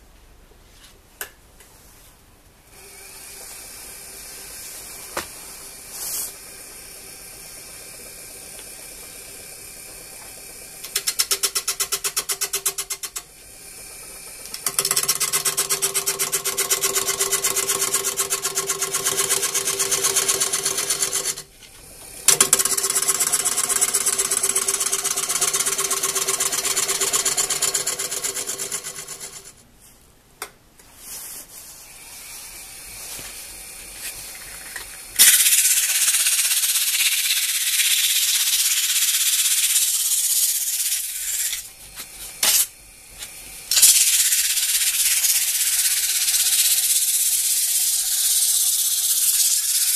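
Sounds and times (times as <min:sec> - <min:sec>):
sanding hiss on turning wood: 0:02.8 - 0:10.8, 0:13.4 - 0:21.5, 0:22.7 - 0:29.5, 0:31.0 - 0:49.9
gouge cutting wood on a lathe: 0:02.9 - 0:29.6.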